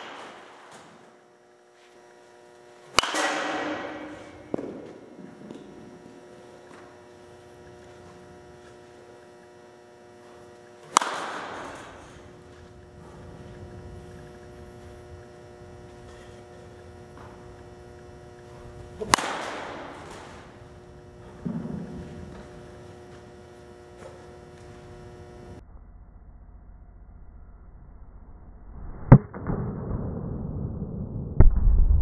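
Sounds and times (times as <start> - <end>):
baseball bat hitting ball: 0.0 - 1.0, 2.9 - 9.2, 10.3 - 25.0
steady electrical hum: 0.0 - 28.7.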